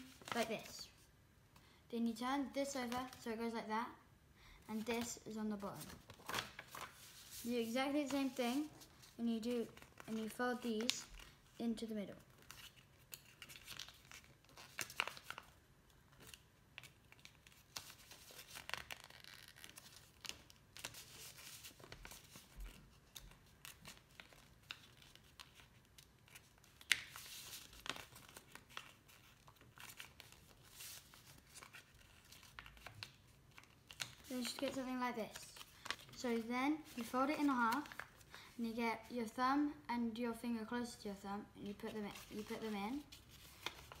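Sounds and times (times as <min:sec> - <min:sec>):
paper rustling and crinkling: 0:00.0 - 0:01.0, 0:05.6 - 0:11.6, 0:12.2 - 0:38.3, 0:41.9 - 0:44.0
paper crease crackle: 0:12.2 - 0:38.2, 0:41.8 - 0:44.0.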